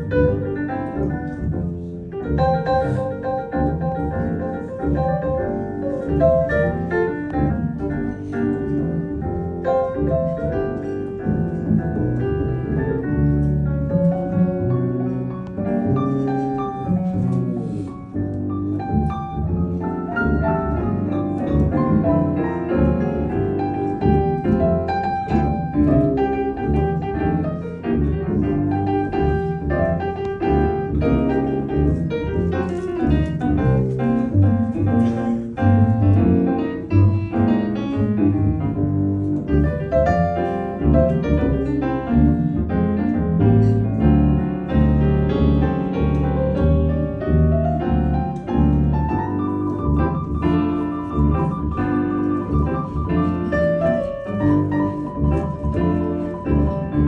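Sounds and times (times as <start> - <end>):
jazz piano: 0.0 - 57.0
plucked double bass: 0.0 - 57.0.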